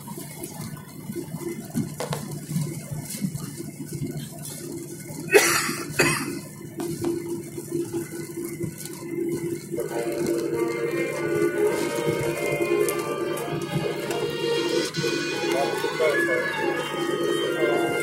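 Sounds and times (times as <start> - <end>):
jet cabin rushing roar: 0.0 - 18.0
loud bursts of noise: 9.1 - 18.0.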